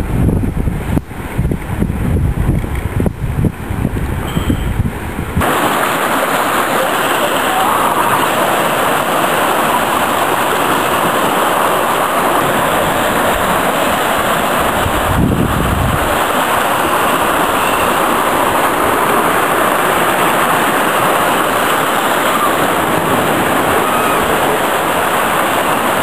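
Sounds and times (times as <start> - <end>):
surf washing against rocks: 0.0 - 26.0.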